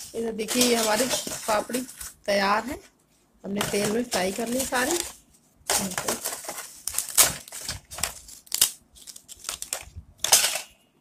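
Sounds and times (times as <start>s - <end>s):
crisp crackers crunching: 6.8s - 10.0s.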